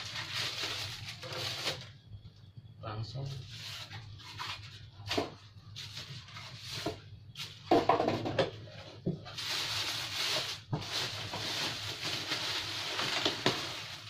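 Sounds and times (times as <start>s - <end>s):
plastic bag rustling: 0.0s - 2.0s, 3.4s - 8.0s, 8.6s - 14.0s.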